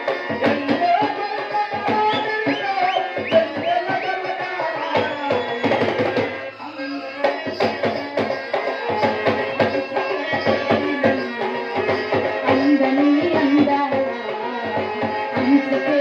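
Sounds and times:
hand drums in quick rhythm: 0.0 - 6.5.

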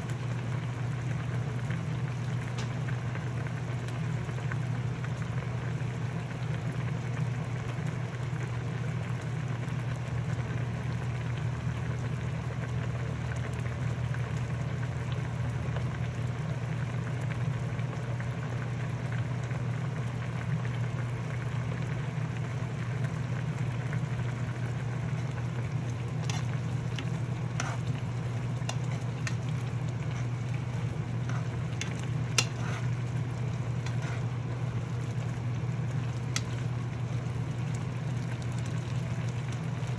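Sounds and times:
low steady hum: 0.0 - 39.9
food sizzling in pan: 21.0 - 39.9.

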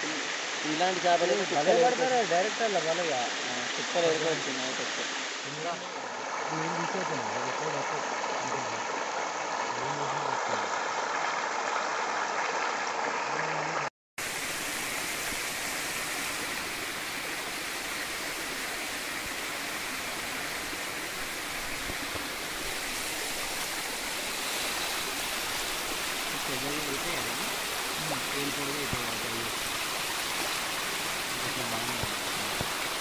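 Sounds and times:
water pouring over wall: 21.2 - 33.0.

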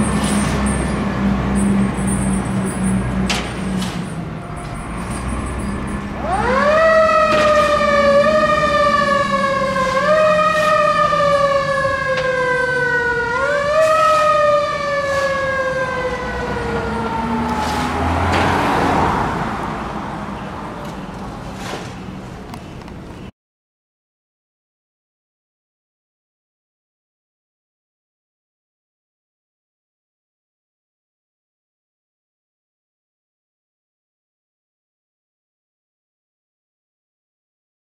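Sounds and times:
fire truck siren winding: 4.5 - 18.1.

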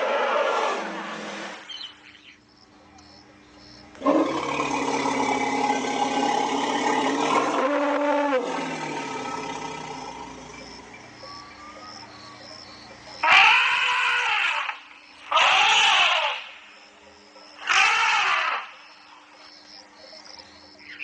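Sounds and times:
elephant calling: 4.0 - 16.5, 17.6 - 18.9.

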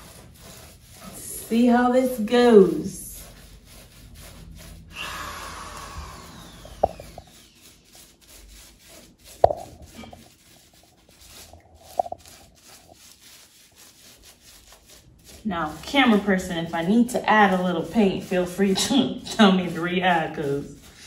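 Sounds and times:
paintbrush scrubbing on wall: 0.0 - 21.0.

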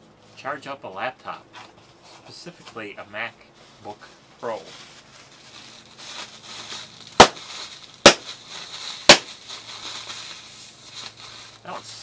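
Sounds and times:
plastic crinkling: 4.4 - 12.0
air pillow packing popping: 7.1 - 8.4, 9.0 - 9.5.

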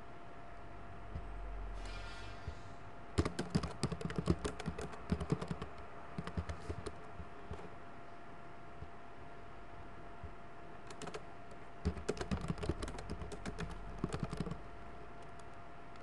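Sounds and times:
faint steady hum: 0.0 - 16.0
computer keyboard typing: 3.2 - 7.7, 10.8 - 16.0.

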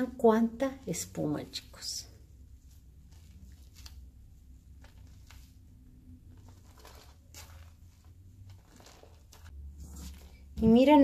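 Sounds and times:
slime squishing and crackling: 3.0 - 10.5.

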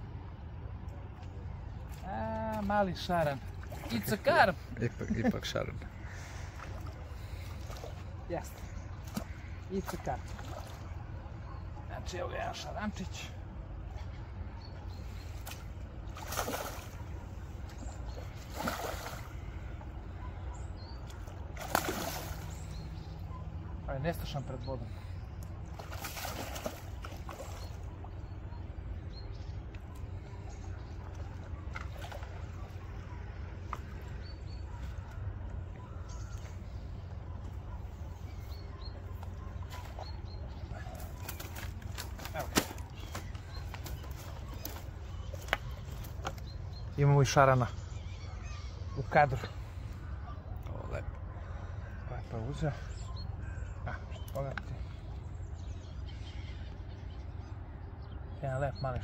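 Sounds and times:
carp splashing at water surface: 15.4 - 19.5, 21.1 - 22.7, 25.7 - 27.9.

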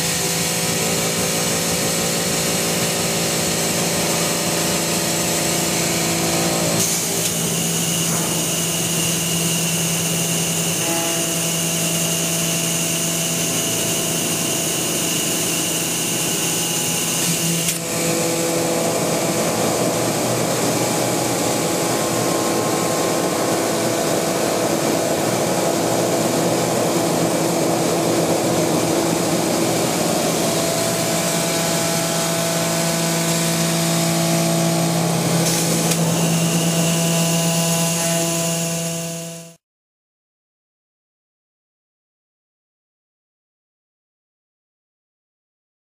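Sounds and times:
machine whining tones: 3.2 - 39.5
milling machine cutting: 4.3 - 39.4.

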